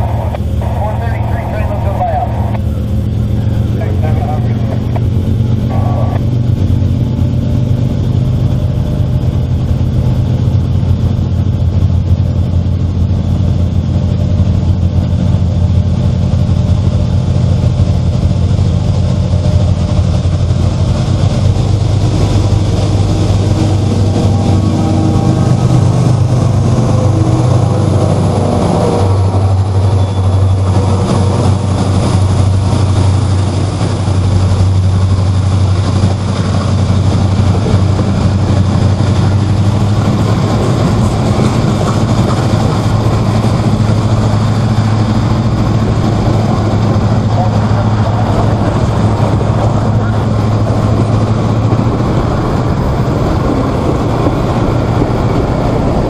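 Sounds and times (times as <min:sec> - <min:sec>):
diesel locomotive engines droning: 0:00.0 - 0:56.0
freight car wheels rumbling on rails: 0:00.0 - 0:56.0.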